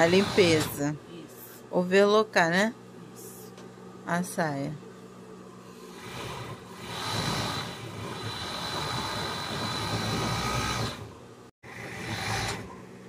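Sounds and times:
overlock sewing machine whining: 0.0 - 0.8, 5.7 - 12.9.

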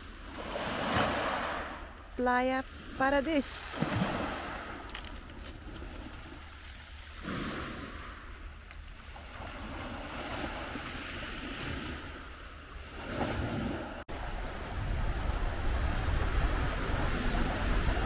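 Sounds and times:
waves washing onto pebble beach: 3.3 - 8.2, 14.1 - 18.0
wind rumbling on microphone: 3.7 - 18.0.

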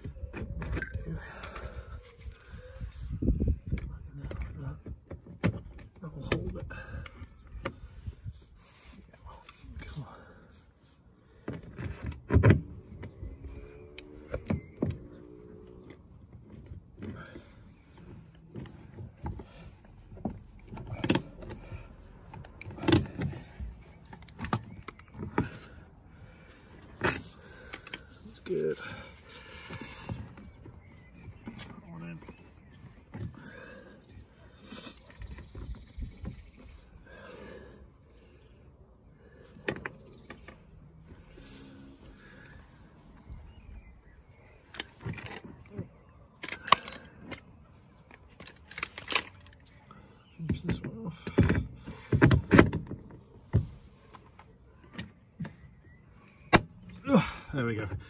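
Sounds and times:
plastic and metal parts clicking: 46.4 - 49.8.

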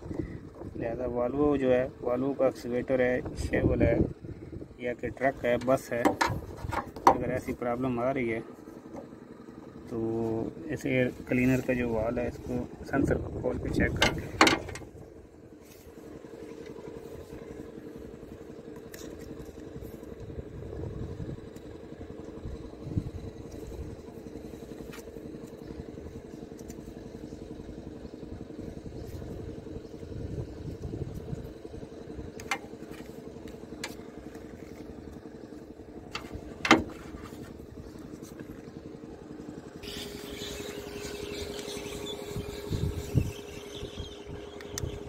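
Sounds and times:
engine running: 0.0 - 45.0.

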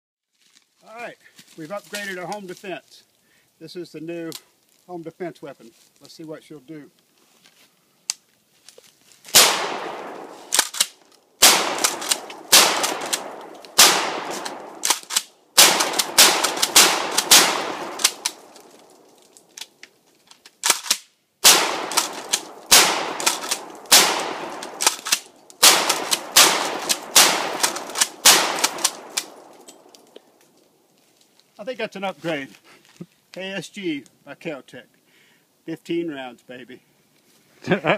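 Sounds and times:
shotgun shots with echo: 9.4 - 10.6, 11.4 - 14.9, 15.6 - 18.4, 21.4 - 25.0, 25.6 - 29.5.

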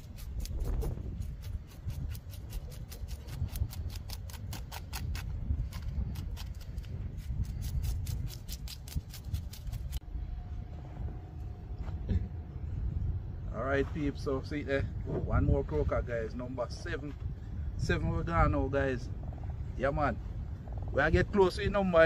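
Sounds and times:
knife scraping fish scales: 0.0 - 10.0.

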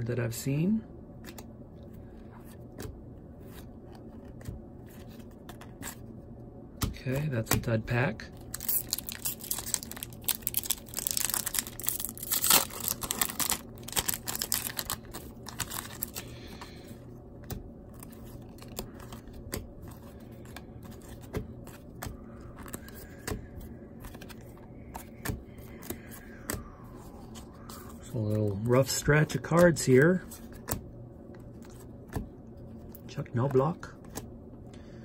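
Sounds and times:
foil pack crinkling as torn open: 8.5 - 16.2.

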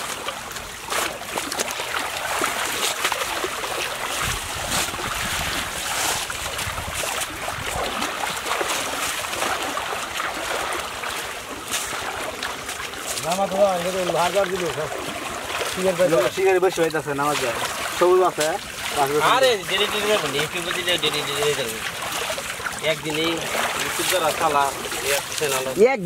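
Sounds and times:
people wading in shallow water: 0.0 - 26.0
wind on microphone: 4.0 - 8.4.

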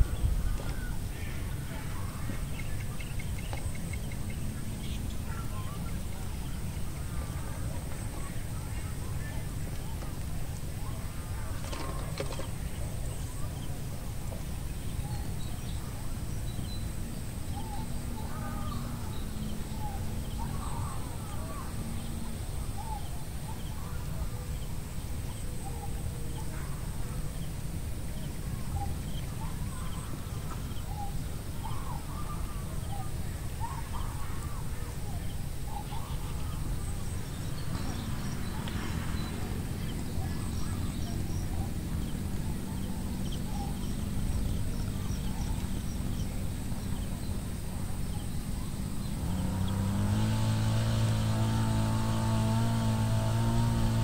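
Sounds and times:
steady low rumble: 0.0 - 11.5.

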